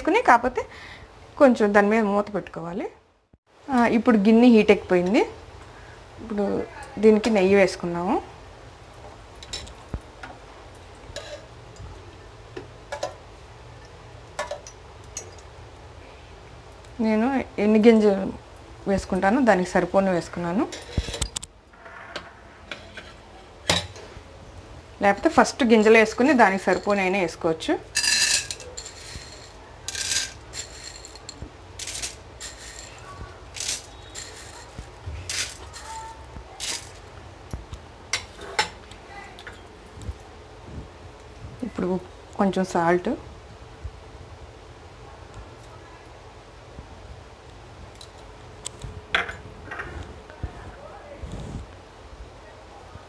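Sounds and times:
popcorn kernels crackling: 0:25.1 - 0:38.3
steel spoon clinking on metal: 0:28.0 - 0:33.0, 0:33.6 - 0:37.0.

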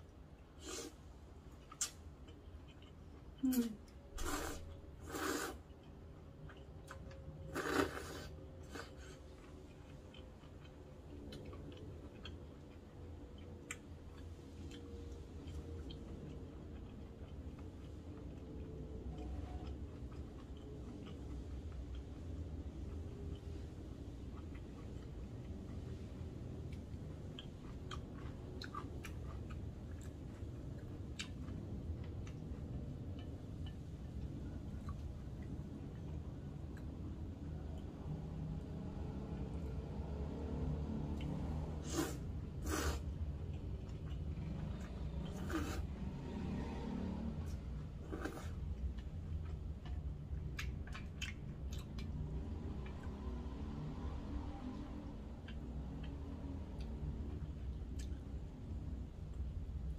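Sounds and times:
wet chewing: 0:00.4 - 0:37.9, 0:47.4 - 0:53.5
person slurping noodles: 0:04.2 - 0:05.6, 0:07.5 - 0:09.0, 0:41.8 - 0:43.0, 0:45.3 - 0:45.9.

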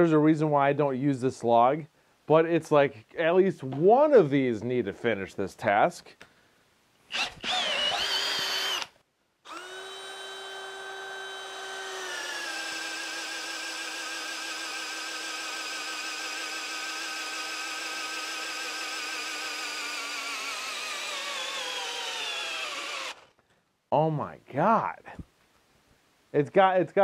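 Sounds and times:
drill motor whining under load: 0:07.1 - 0:23.3.

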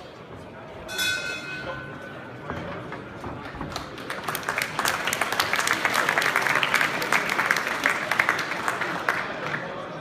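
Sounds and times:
crowd applauding: 0:03.4 - 0:10.0.

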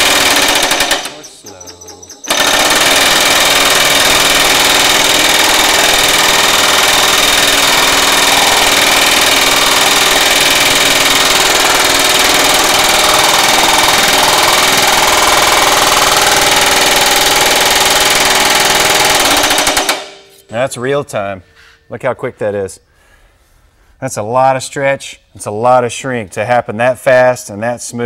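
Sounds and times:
power hammer striking sheet metal: 0:00.0 - 0:01.2, 0:02.2 - 0:20.5.

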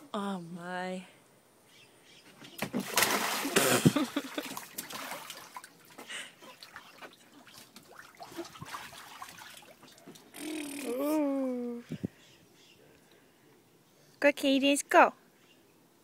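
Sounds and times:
light splashing and dripping: 0:02.6 - 0:10.4
child splashing into pool: 0:02.6 - 0:11.1.

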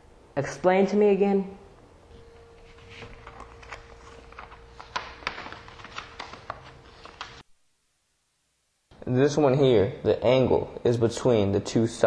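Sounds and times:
faint steady hum: 0:00.0 - 0:12.0
paper rustling and tapping: 0:02.6 - 0:07.5.

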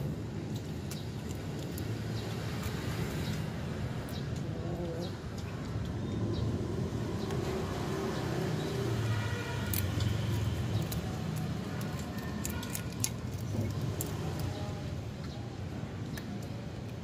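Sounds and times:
kittens crunching shells: 0:00.4 - 0:06.0, 0:09.6 - 0:14.8.

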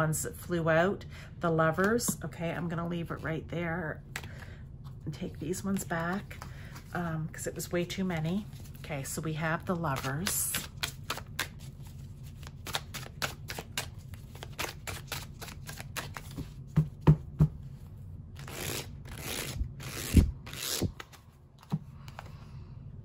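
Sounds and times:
cards shuffling clicks: 0:09.9 - 0:11.7, 0:12.3 - 0:16.6, 0:18.4 - 0:22.3.

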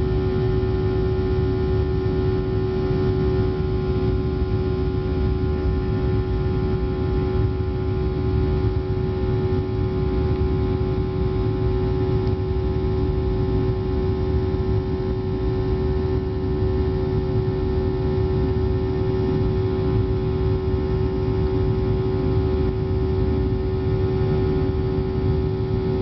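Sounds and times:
airplane cabin engine drone: 0:00.0 - 0:26.0
strong steady hum: 0:00.0 - 0:26.0.

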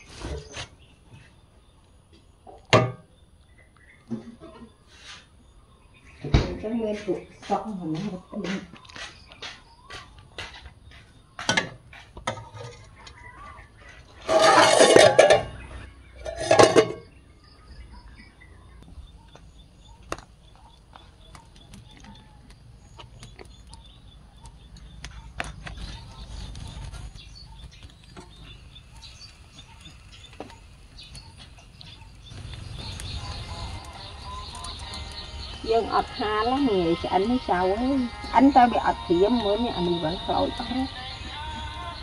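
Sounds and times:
faint high chirping: 0:00.0 - 0:42.0
farm animal calls: 0:08.0 - 0:17.0, 0:19.1 - 0:42.0.

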